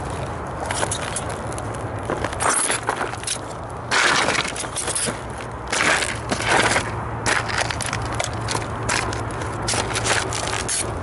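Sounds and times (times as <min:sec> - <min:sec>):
cardboard and plastic crunching: 0:03.9 - 0:11.0.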